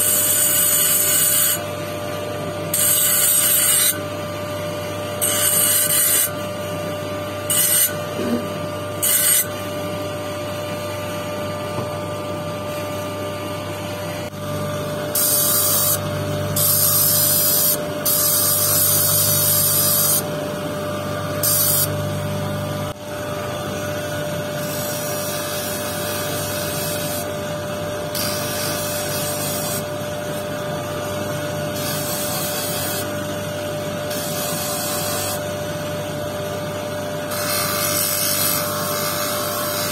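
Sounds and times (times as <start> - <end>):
electric motor humming: 0.0 - 39.9
stone scraping on spinning disc: 7.5 - 9.5.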